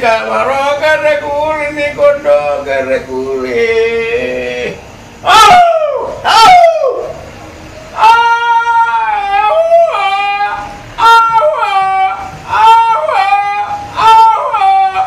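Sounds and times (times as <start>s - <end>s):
man's yodel-like shouted cry: 3.6s - 7.2s, 7.9s - 15.0s.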